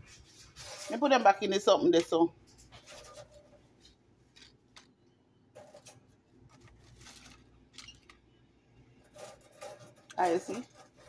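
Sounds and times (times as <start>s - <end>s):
potato chips rustling on plate: 5.6s - 8.1s.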